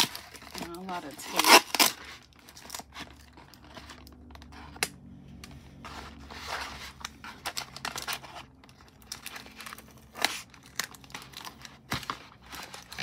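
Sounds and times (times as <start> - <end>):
plastic packaging crinkling: 0.0 - 4.8, 5.8 - 13.0
tape being torn and peeled: 1.2 - 5.6.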